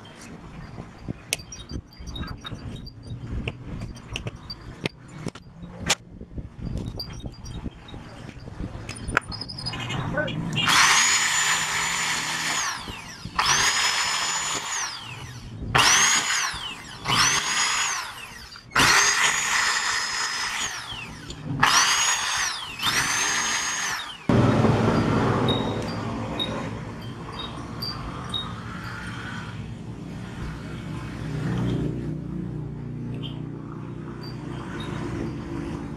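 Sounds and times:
electric drill drilling into metal: 0:10.6 - 0:24.4
low hum: 0:20.6 - 0:35.9.

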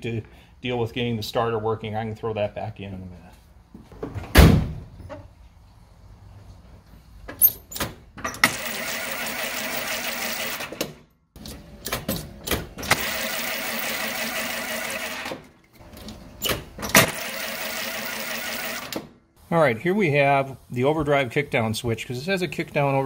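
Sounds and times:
engine starter cranking: 0:07.7 - 0:11.0, 0:11.8 - 0:19.2.

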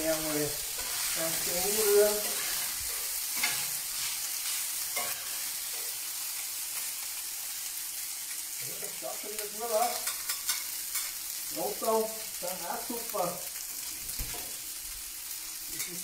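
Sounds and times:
risotto sizzling on a hot plate: 0:00.0 - 0:16.0
metal spatulas scraping: 0:00.7 - 0:01.3, 0:02.1 - 0:05.5.

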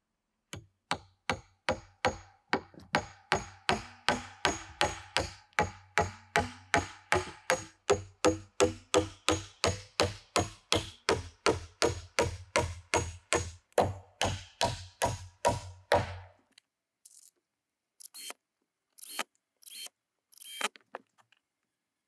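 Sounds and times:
hammer driving nails into wood: 0:00.5 - 0:16.3.

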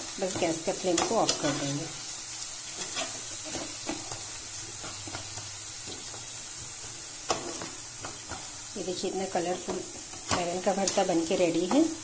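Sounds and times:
food sizzling: 0:00.0 - 0:12.0
spatula scraping metal pan: 0:00.9 - 0:01.9, 0:02.8 - 0:04.2.

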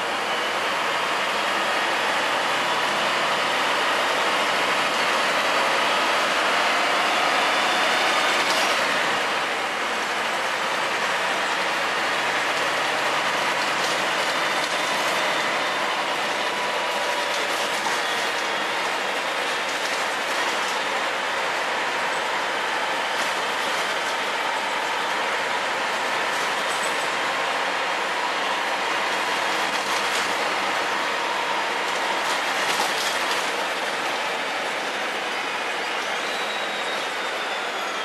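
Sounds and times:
bus engine running: 0:00.0 - 0:38.0
road noise: 0:00.0 - 0:38.0.

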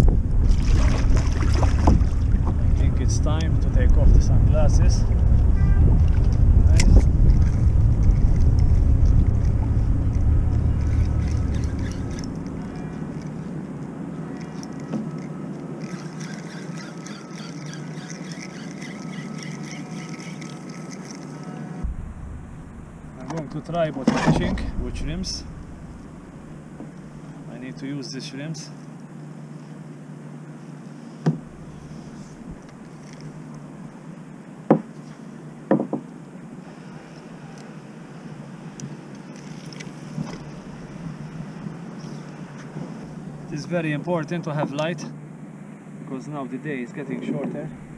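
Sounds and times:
wind and water rush: 0:00.0 - 0:46.4
fishing reel ticking: 0:10.8 - 0:13.4, 0:14.3 - 0:21.5.

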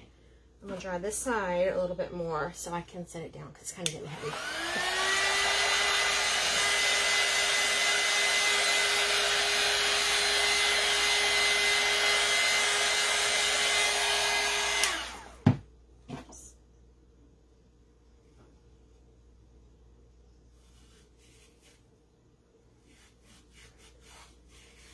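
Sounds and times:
heat gun fan whirring: 0:03.8 - 0:15.7.

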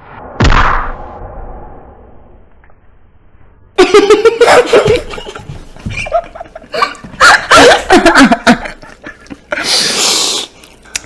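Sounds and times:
people laughing with squeals: 0:03.8 - 0:09.8.

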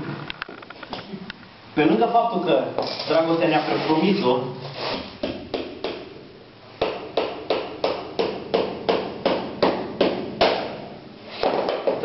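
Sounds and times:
hammer striking wood: 0:06.8 - 0:10.8.

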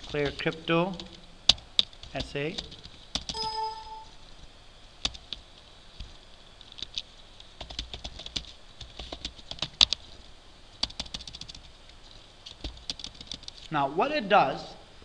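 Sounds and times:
typing on keyboard: 0:01.0 - 0:04.0, 0:07.6 - 0:10.0, 0:10.8 - 0:11.7, 0:12.5 - 0:13.6.

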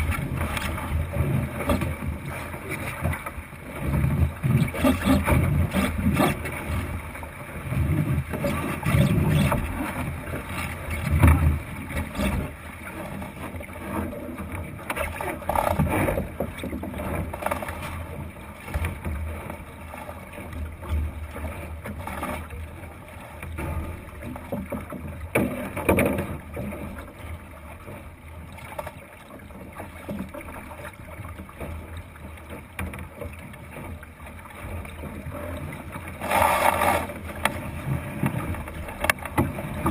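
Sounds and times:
water rushing along wooden hull: 0:00.0 - 0:39.9.

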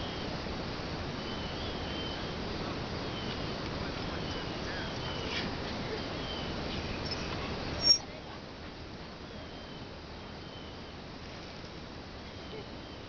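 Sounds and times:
outdoor background hiss: 0:00.0 - 0:13.0
faint high chirps: 0:04.1 - 0:08.1.

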